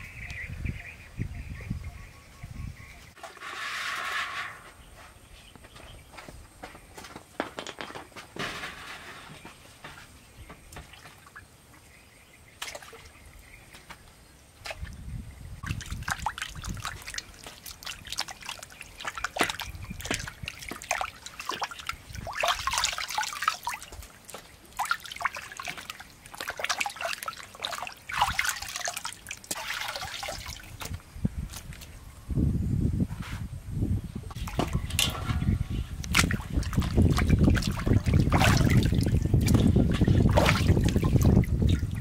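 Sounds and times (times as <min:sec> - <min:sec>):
water splashes and drips: 0:09.9 - 0:11.8, 0:12.6 - 0:32.0, 0:34.3 - 0:42.0
hands sloshing meat in water: 0:15.6 - 0:31.9, 0:34.4 - 0:42.0.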